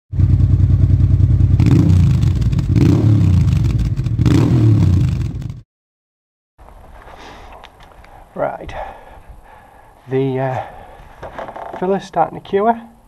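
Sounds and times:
motorcycle engine revving: 0.1 - 5.6.

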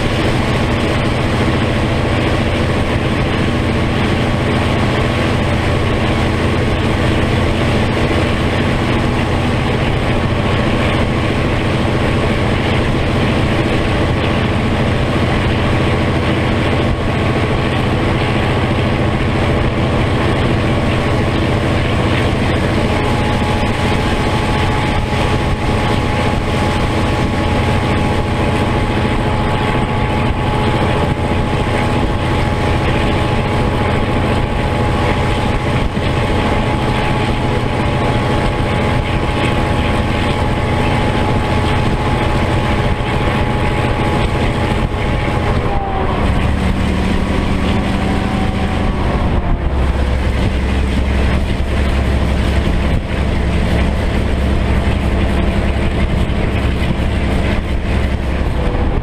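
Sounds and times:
diesel locomotive engine drone: 0.0 - 59.0
thin steady whine: 0.0 - 59.0.

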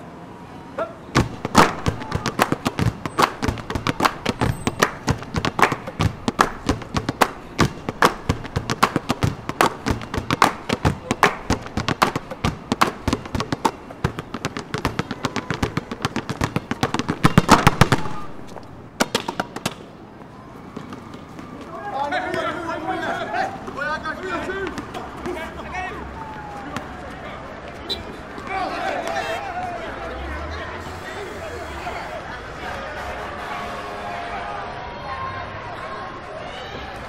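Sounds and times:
basketballs bouncing on court: 1.2 - 18.3.

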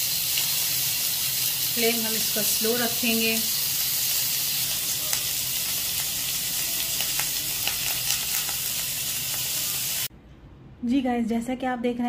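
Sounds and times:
skewers sizzling in oil: 0.0 - 10.1.

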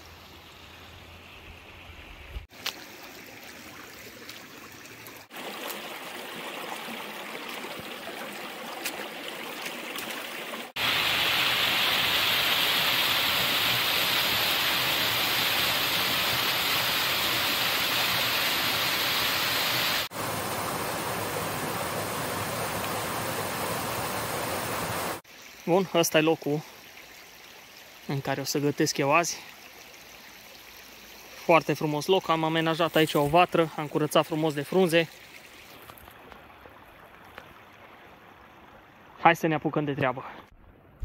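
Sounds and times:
stream running over stones: 0.0 - 40.5
waterfall rushing into pool: 5.2 - 26.6.

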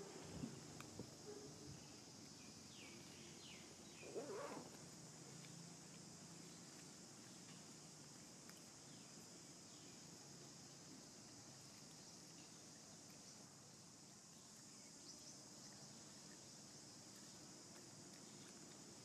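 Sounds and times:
faint chirps: 0.0 - 5.6
steady high hiss: 0.0 - 19.0.

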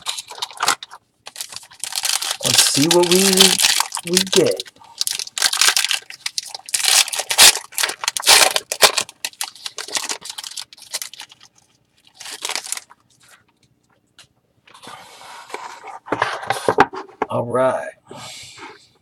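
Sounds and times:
foil wrapper tearing and crinkling: 0.0 - 13.0.

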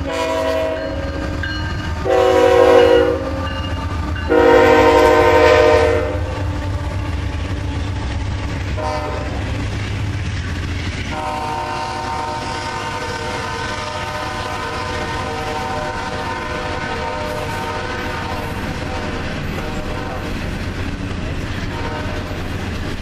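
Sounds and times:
locomotive horn chord: 0.0 - 1.4, 2.0 - 3.6, 4.3 - 8.1, 8.7 - 9.6, 11.1 - 20.3
freight train rumbling on rails: 0.0 - 23.0.

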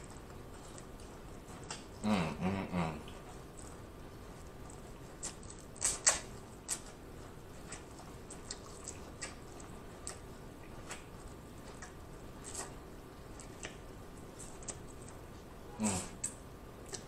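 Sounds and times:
chewing clicks: 4.4 - 13.9, 16.2 - 17.0
wet mouth smacks: 5.2 - 6.8, 16.2 - 17.0.

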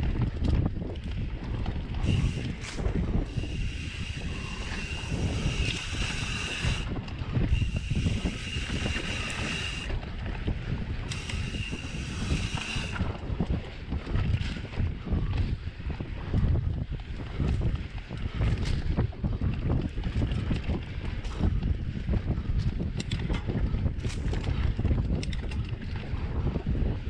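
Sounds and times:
bike tyres rumbling on sand: 0.0 - 27.0
wind buffeting microphone: 0.0 - 27.0
freewheel ratcheting buzz: 2.0 - 10.0, 11.0 - 13.2.

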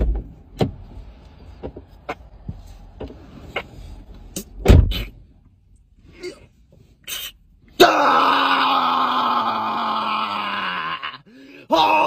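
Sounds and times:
car cabin rumble: 0.0 - 6.9
loud thump: 4.6 - 5.1.

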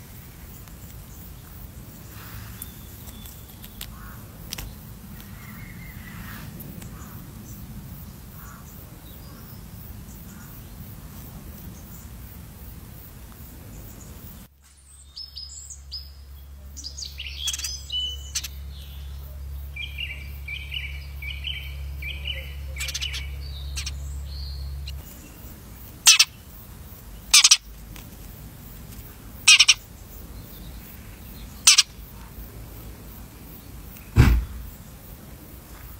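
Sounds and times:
sparrow chirping: 0.2 - 11.0, 14.9 - 27.7, 28.5 - 35.0
loud short noise bursts: 34.2 - 34.7.

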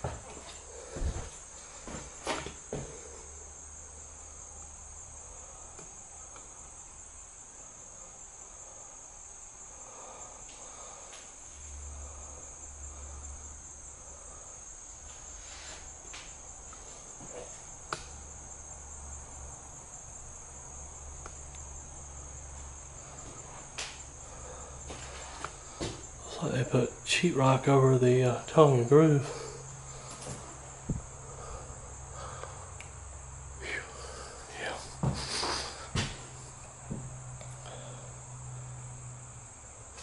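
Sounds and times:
footsteps clicking on floor: 0.0 - 3.0, 24.9 - 26.1, 35.0 - 36.2
insects droning: 0.0 - 40.0.

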